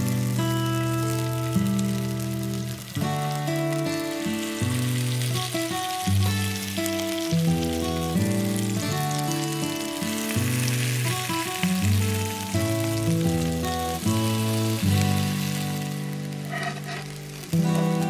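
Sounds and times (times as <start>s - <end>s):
background music melody: 0.0s - 18.0s
food sizzling in a pan: 0.0s - 18.0s.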